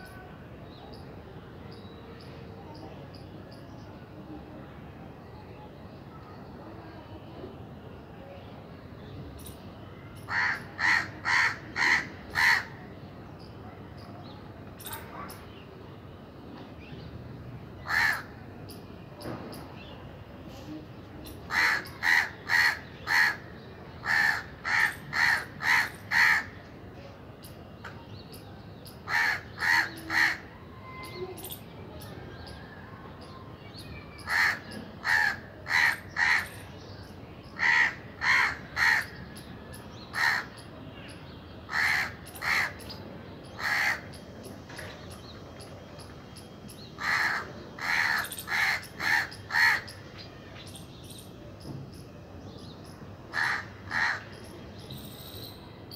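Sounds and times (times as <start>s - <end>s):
crow cawing: 10.3s - 12.8s, 17.8s - 18.4s, 21.5s - 26.6s, 29.1s - 30.5s, 34.2s - 36.5s, 37.6s - 39.2s, 40.1s - 40.6s, 41.7s - 42.8s, 43.6s - 44.1s, 47.0s - 50.0s, 53.3s - 54.4s.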